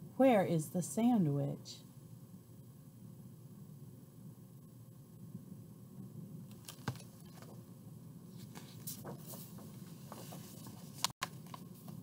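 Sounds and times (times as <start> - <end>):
paper rustling: 8.3 - 12.0.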